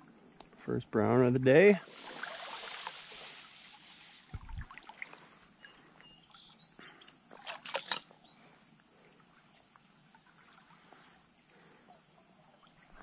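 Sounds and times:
fish splashing in net: 1.8s - 5.2s
dull bump: 4.3s - 4.7s
bird chirps: 5.6s - 8.4s.

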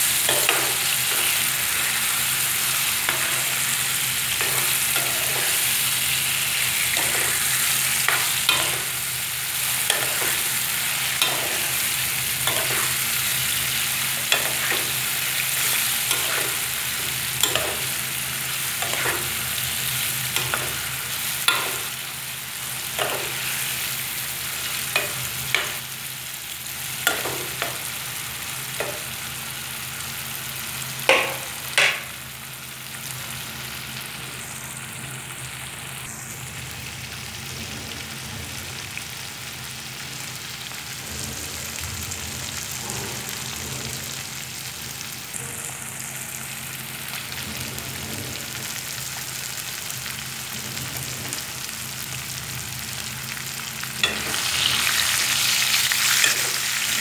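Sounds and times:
food sizzling in a pan: 0.0s - 57.0s
metal spoon knocking on pan: 31.1s - 32.1s.

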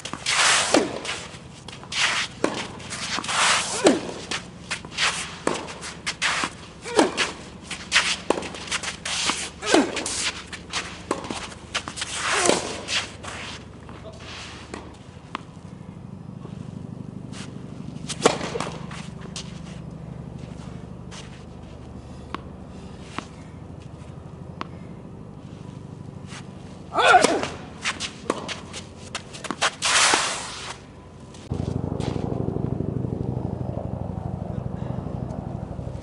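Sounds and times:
shoe squeaks and scuffs: 0.0s - 14.8s, 17.2s - 24.2s, 27.8s - 31.1s
steady hum: 0.0s - 36.0s.

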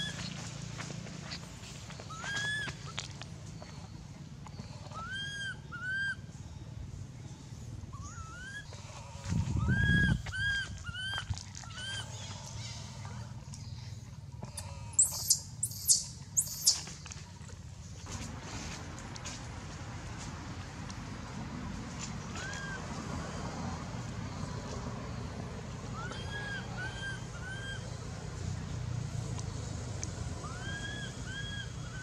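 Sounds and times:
baby monkey crying: 15.0s - 16.8s, 25.9s - 27.8s, 30.4s - 32.0s.

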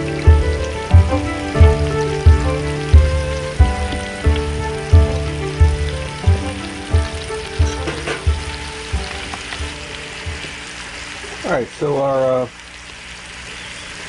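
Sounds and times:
background music with steady beat: 0.0s - 11.0s
meat and onions sizzling in oil: 0.0s - 14.0s.

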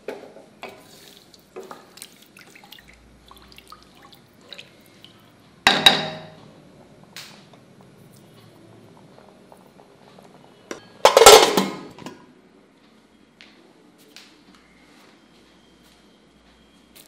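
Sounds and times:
metal lid clattering: 10.7s - 12.2s.

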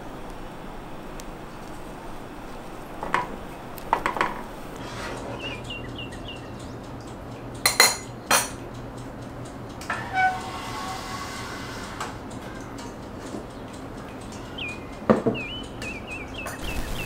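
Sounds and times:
metal spoon clinking against pot: 7.6s - 8.6s.

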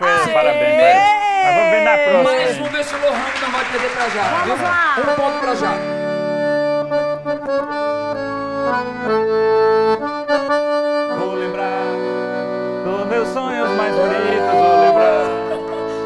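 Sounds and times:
piano accordion melody: 4.6s - 16.0s.

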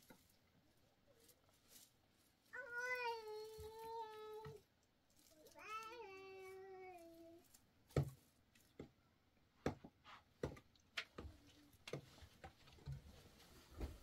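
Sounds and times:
light knocks and taps: 9.6s - 13.0s.

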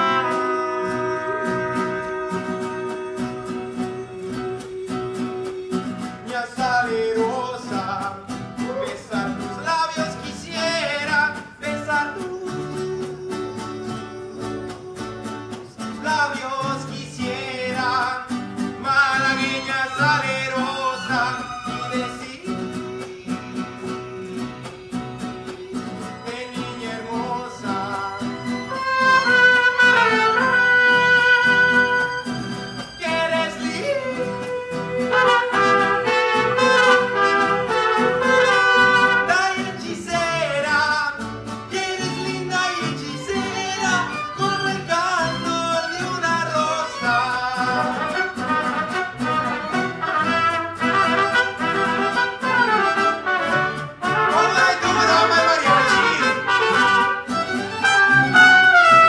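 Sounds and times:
trumpets: 0.0s - 3.6s, 28.6s - 39.8s, 46.6s - 59.0s
man singing: 0.0s - 59.0s
strummed guitars: 0.0s - 59.0s
violins: 19.2s - 22.4s, 25.9s - 39.3s, 41.8s - 59.0s.

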